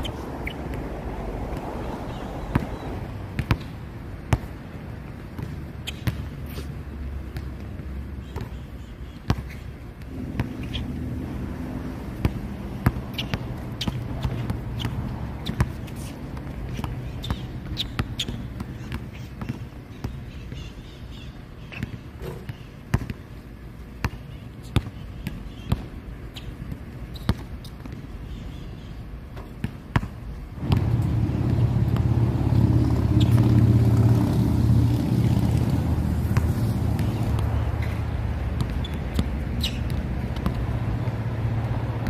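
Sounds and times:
low background hum: 0.0s - 42.0s
basketball bouncing on hard court: 0.4s - 4.5s, 5.3s - 6.3s, 7.3s - 8.6s, 9.3s - 10.9s, 12.2s - 20.7s, 21.8s - 23.2s, 24.0s - 25.9s, 26.6s - 28.0s, 29.4s - 34.2s, 36.2s - 42.0s.

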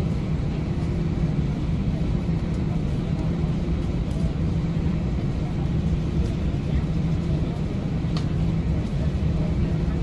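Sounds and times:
jet engines and wheels rumbling: 0.0s - 10.0s.

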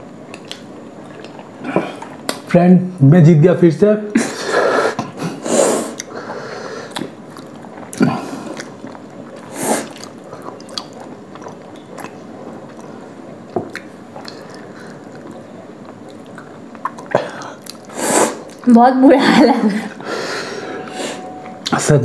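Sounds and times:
wet squishy chewing: 0.2s - 2.5s, 5.9s - 18.7s.

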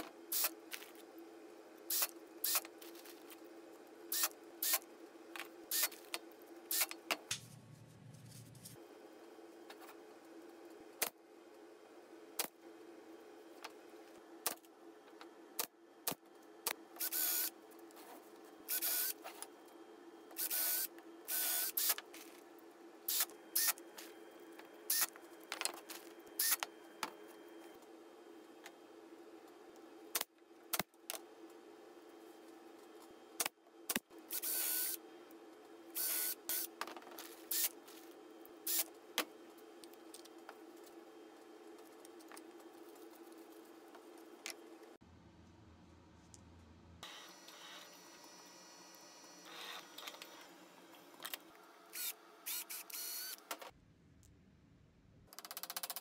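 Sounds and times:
steady low hum: 0.0s - 52.5s
cordless drill bursts: 36.0s - 36.7s, 51.9s - 53.4s.

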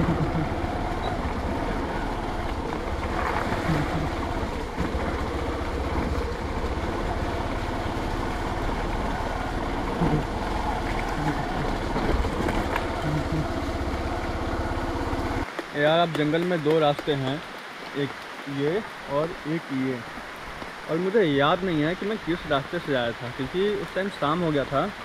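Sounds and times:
motorcycle engine running: 0.0s - 15.5s.

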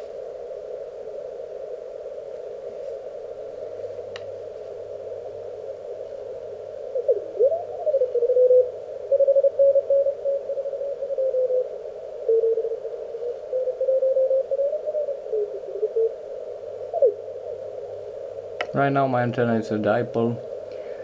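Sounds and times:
receiver hiss: 0.0s - 21.0s.

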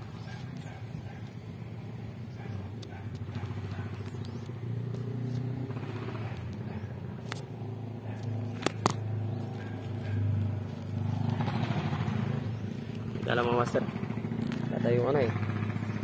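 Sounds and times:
engine humming: 0.0s - 16.0s
sharp clicks: 8.2s - 11.7s.

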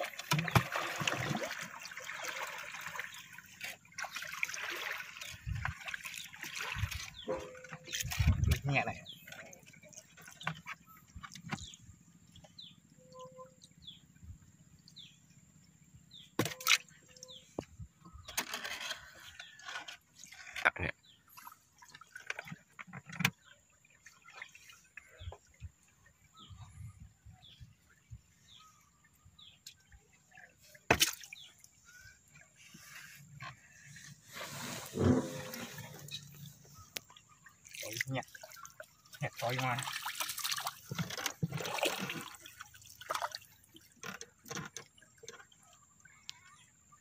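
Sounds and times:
water splashing and dripping: 0.0s - 13.7s, 16.4s - 17.7s, 21.3s - 26.4s, 29.0s - 46.5s.

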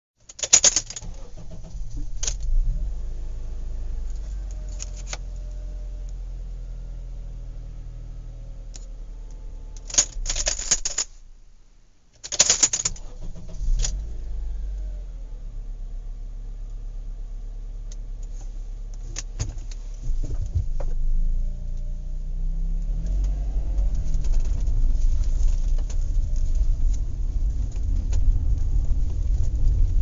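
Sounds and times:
rattling clinking clatter: 0.3s - 2.5s, 9.8s - 11.1s
steady low rumble: 0.8s - 12.1s, 12.8s - 30.0s.

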